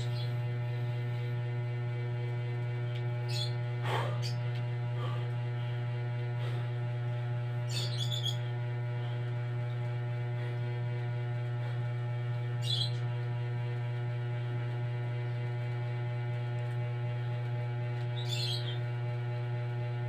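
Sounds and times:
electrical hum: 0:00.0 - 0:20.0
high chirping: 0:07.7 - 0:08.4.

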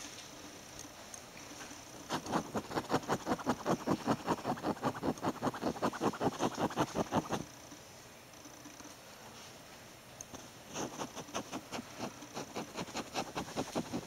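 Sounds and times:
rat scratching: 0:02.0 - 0:07.5, 0:10.7 - 0:14.0.

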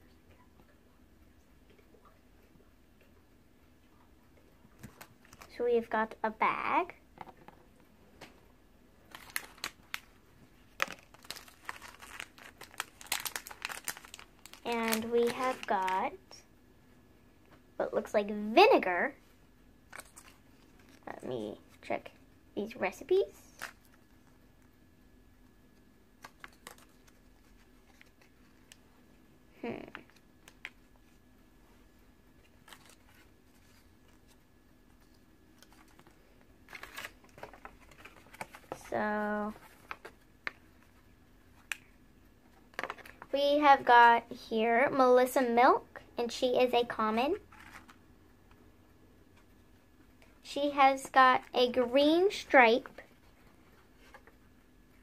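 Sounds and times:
paper cards rustling and clicking: 0:09.1 - 0:10.1, 0:10.7 - 0:16.0, 0:19.9 - 0:21.1, 0:26.2 - 0:28.8, 0:32.4 - 0:34.4, 0:35.0 - 0:41.0, 0:47.5 - 0:48.0.

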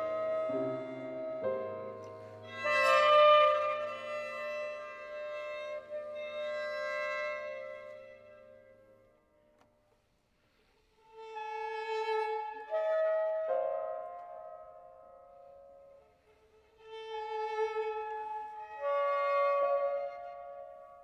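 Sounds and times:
violin sustained notes: 0:00.0 - 0:08.9
soprano saxophone sustained notes: 0:00.0 - 0:09.4.

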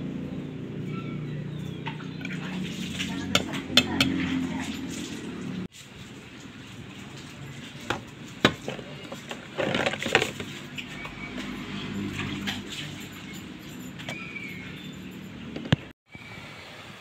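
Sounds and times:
food clinking into steel bowl: 0:02.2 - 0:05.2.

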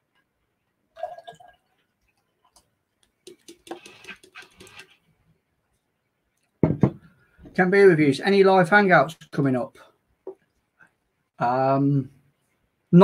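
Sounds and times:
beer pouring into glass: 0:00.9 - 0:01.8.

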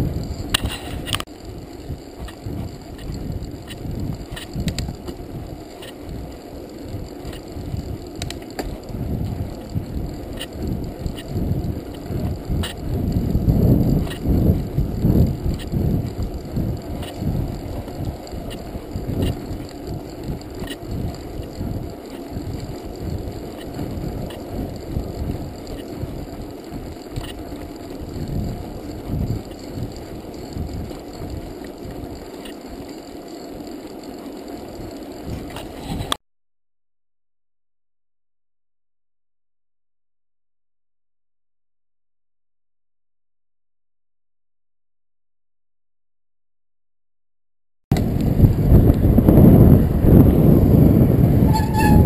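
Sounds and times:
wind buffeting microphone: 0:00.0 - 0:34.0, 0:47.9 - 0:52.0
tyre rumble on road: 0:00.0 - 0:36.1
sharp clicks from bike: 0:00.0 - 0:36.2.

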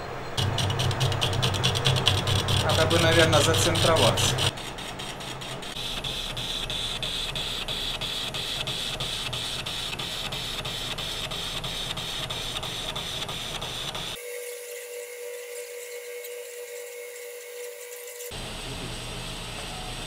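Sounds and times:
lathe hum: 0:00.0 - 0:20.0
lathe cutting steel: 0:00.4 - 0:07.0, 0:12.7 - 0:20.0.

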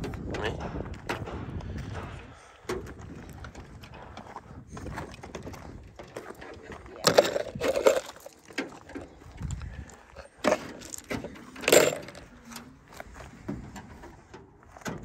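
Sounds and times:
metallic clinks of hand tools: 0:10.5 - 0:12.6.

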